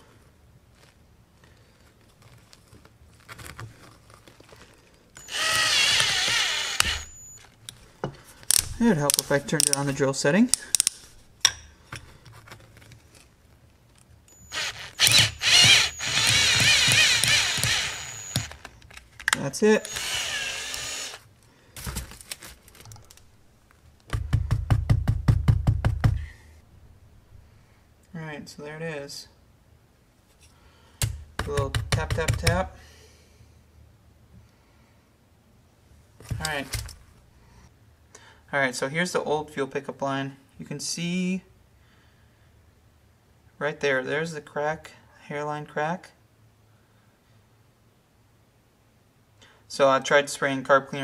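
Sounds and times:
cordless drill motor whine: 5.2s - 7.5s, 14.3s - 18.7s, 19.8s - 21.2s.

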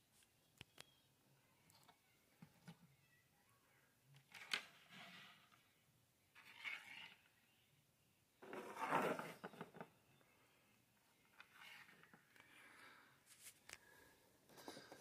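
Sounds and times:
plastic scraping on wooden tabletop: 8.4s - 9.9s.

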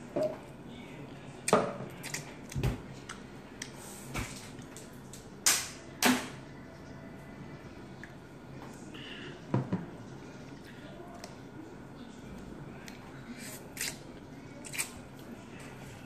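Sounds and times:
eating noises: 12.2s - 15.8s.

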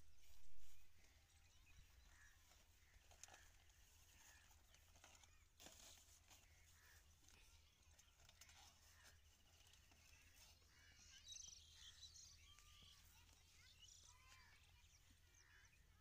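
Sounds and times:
faint chirps: 0.0s - 16.0s.

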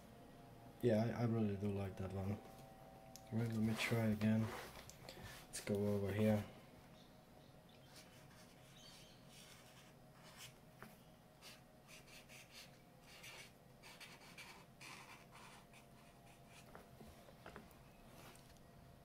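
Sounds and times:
marker scratching on paper: 7.9s - 10.6s, 11.4s - 16.8s.

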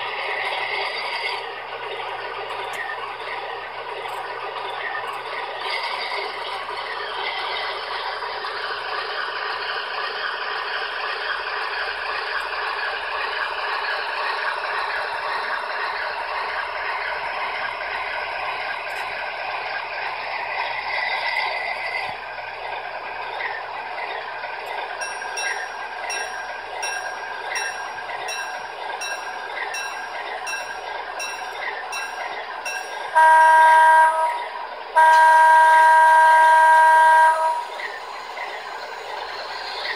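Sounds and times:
diesel engine sound from speaker: 0.0s - 39.9s
rhythmic clicking: 24.6s - 33.2s.

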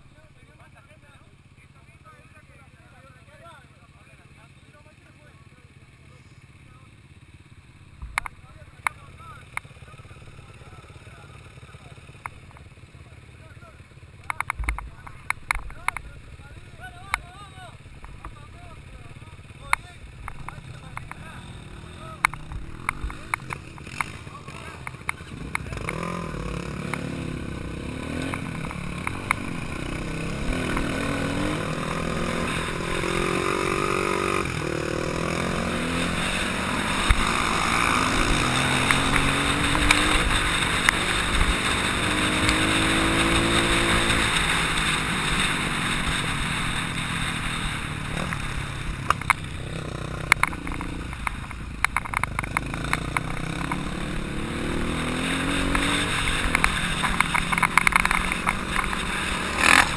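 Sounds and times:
dirt bike engine revving: 13.3s - 59.9s.

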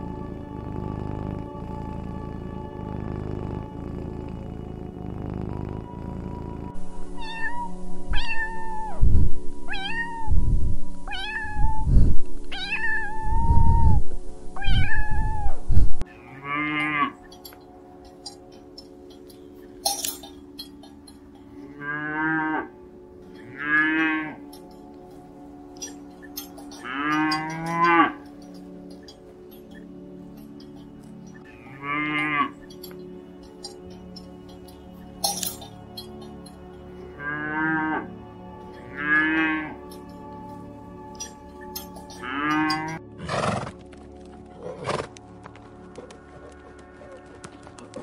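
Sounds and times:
background music: 0.0s - 48.0s
cattle mooing: 16.1s - 17.5s, 20.6s - 24.8s, 25.8s - 34.8s, 37.0s - 40.2s, 41.1s - 43.0s.

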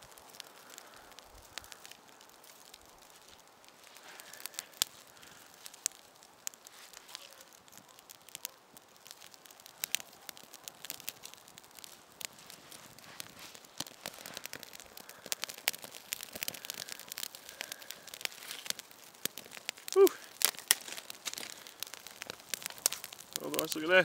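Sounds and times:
twigs crackling and snapping: 0.0s - 24.0s
faint rustle: 0.3s - 8.4s, 10.8s - 24.0s.

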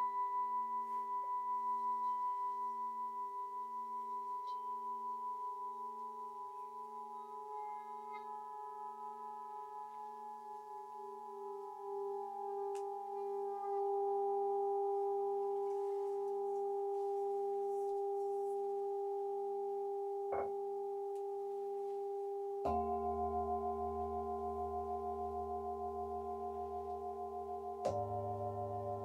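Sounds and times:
metal singing bowls ringing: 0.0s - 20.8s, 22.6s - 29.0s
singing bowl strike: 22.6s - 29.0s.

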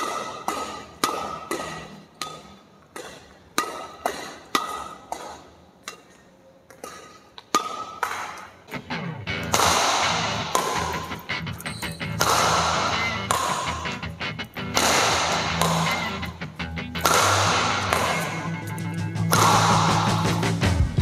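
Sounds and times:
racket hitting shuttlecock: 0.0s - 8.8s, 9.4s - 20.5s
loud steady sound: 8.7s - 21.0s.

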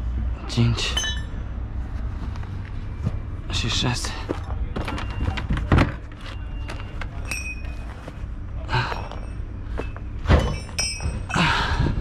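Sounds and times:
steady low hum: 0.0s - 12.0s
metal hook clink: 0.9s - 1.4s, 7.2s - 7.8s, 10.4s - 11.4s.

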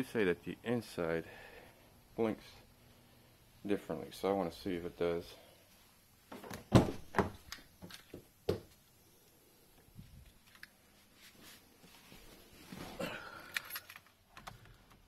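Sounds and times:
car door clunks and knocks: 6.6s - 7.4s
rustling: 9.9s - 14.7s.

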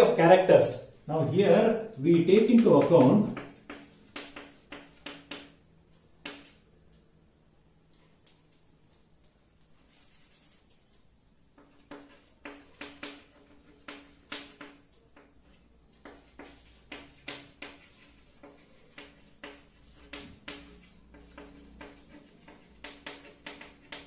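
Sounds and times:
chalk writing on blackboard: 0.0s - 6.7s, 8.2s - 10.9s, 11.6s - 24.0s
cloth duster wiping board: 11.6s - 24.0s.

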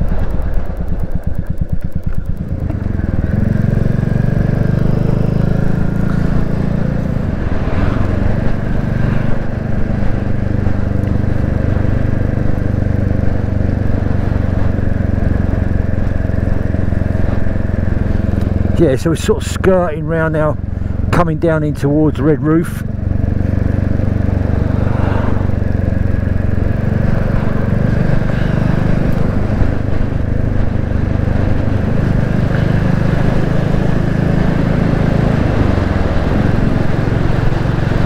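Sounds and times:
single-cylinder motorcycle engine: 0.0s - 38.0s.

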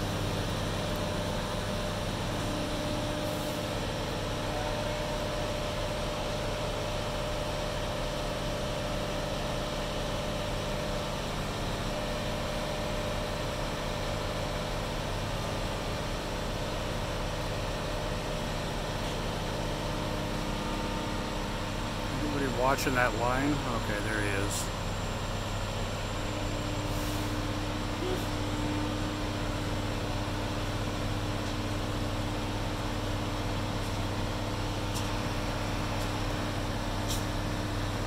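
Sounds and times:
diesel engine droning: 20.0s - 38.0s.

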